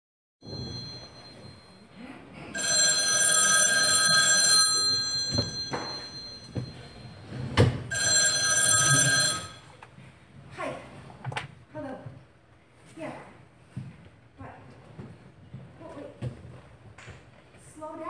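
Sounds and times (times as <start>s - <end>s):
desk telephone ringing: 0.4s - 1.8s, 2.5s - 9.8s.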